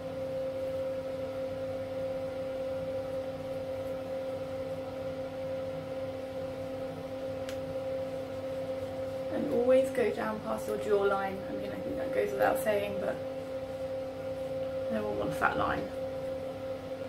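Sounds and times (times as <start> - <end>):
steady two-tone hum: 0.0 - 17.0.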